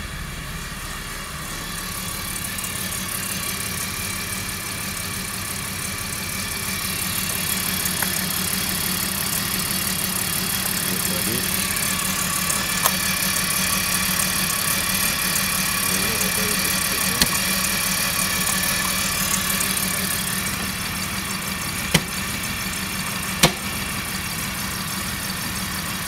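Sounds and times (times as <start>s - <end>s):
car engine idling: 0.0s - 26.0s
sharp clicks: 17.1s - 17.6s, 21.9s - 22.3s, 23.4s - 23.8s.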